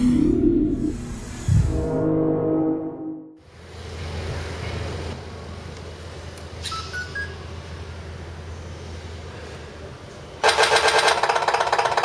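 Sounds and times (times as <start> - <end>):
rising electronic beeps: 0.0 - 3.4
rhythmic diesel engine sound: 7.4 - 12.0.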